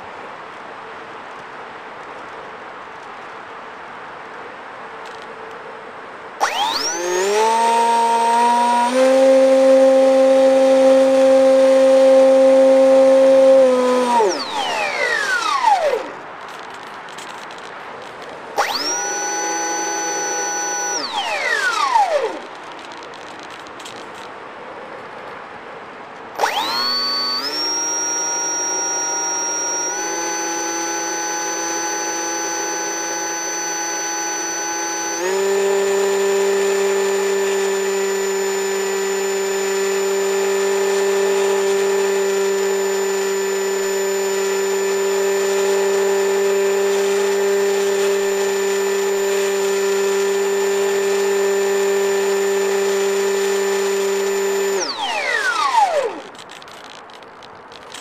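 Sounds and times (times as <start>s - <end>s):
machine running with hum: 6.4s - 24.3s, 26.3s - 58.0s.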